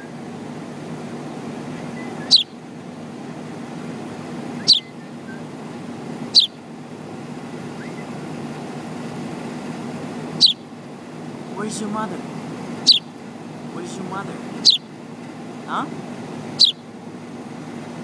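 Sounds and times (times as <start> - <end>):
low hum of traffic: 0.0 - 18.0
sparrow chirping: 1.8 - 2.8, 4.5 - 5.6, 6.2 - 6.7, 7.7 - 8.3, 10.4 - 10.8, 12.7 - 15.0, 16.5 - 17.0.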